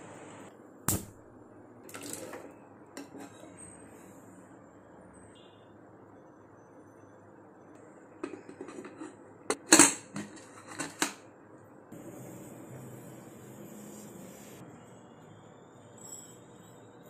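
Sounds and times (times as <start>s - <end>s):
faint steady hiss: 0.0s - 0.5s.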